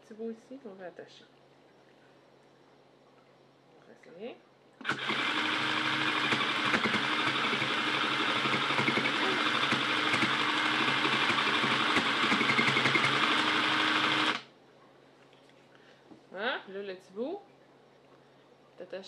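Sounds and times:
sewing machine running: 4.8 - 14.5.

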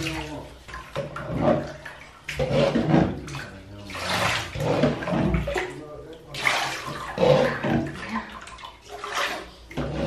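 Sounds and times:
bathwater splashing and pouring: 0.0 - 10.0.

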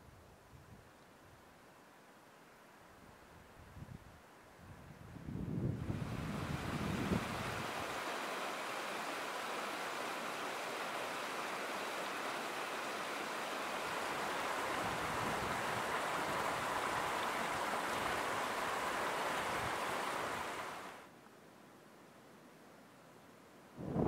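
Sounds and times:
stream rushing over rocks: 6.0 - 21.1.

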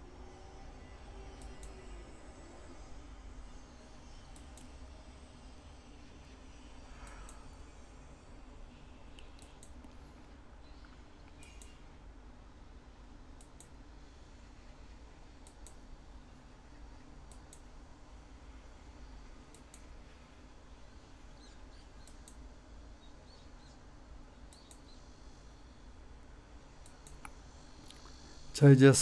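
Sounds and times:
low steady hum: 0.0 - 29.0
computer mouse clicks: 1.3 - 1.8, 4.3 - 4.8, 7.0 - 7.5, 9.1 - 10.0, 10.7 - 11.8, 13.4 - 13.8, 15.4 - 15.8, 17.3 - 17.7, 19.5 - 19.9, 21.4 - 22.4, 24.5 - 25.0, 26.8 - 28.1.

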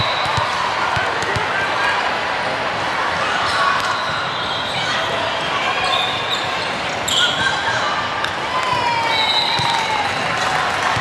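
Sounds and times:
voices chattering in echoing hall: 0.0 - 11.0
sneakers squeaking on floor: 3.4 - 7.7.

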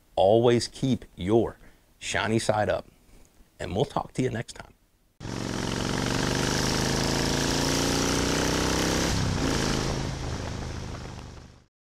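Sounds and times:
motorcycle engine accelerating: 5.2 - 11.7.

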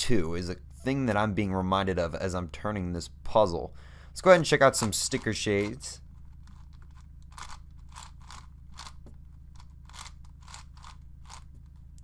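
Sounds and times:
puzzle cube layers turning: 4.4 - 12.0.

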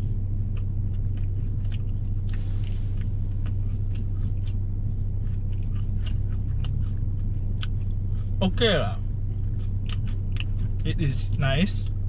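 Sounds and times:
car engine idling: 0.0 - 12.0
chewing food clicks: 0.4 - 2.4, 3.0 - 4.7, 5.3 - 8.0, 9.3 - 12.0.

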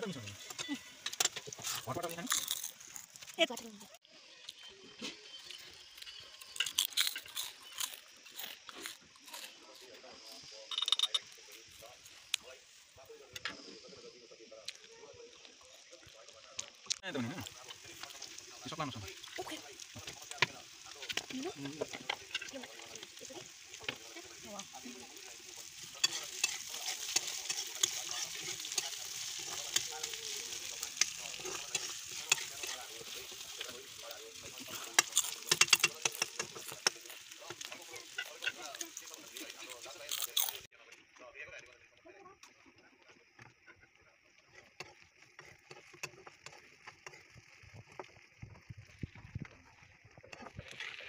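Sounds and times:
meat sizzling in hot oil: 0.0 - 6.6, 15.4 - 40.7, 44.5 - 51.0
metal spatula scraping pan: 25.8 - 33.6.

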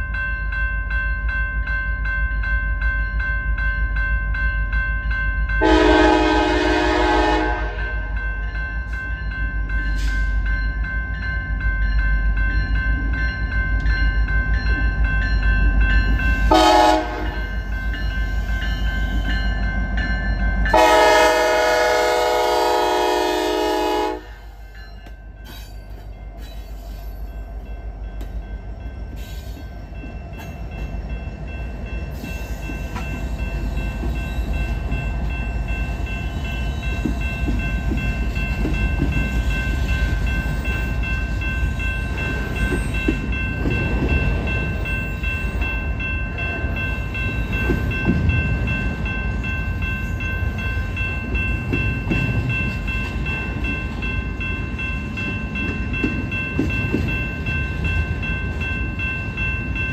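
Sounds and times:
crossing bell ringing: 0.0 - 59.9
locomotive air horn: 5.6 - 8.0, 16.5 - 17.4, 20.7 - 24.4.

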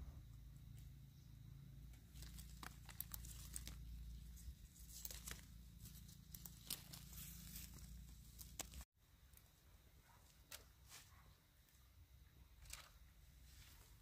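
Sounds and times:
small crackles and snaps: 1.9 - 8.9
rustling and crinkling: 1.9 - 11.3.

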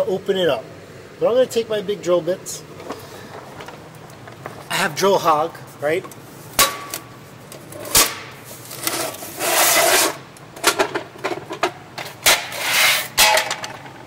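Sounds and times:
rubbing scrape: 8.4 - 10.2, 12.3 - 13.3.

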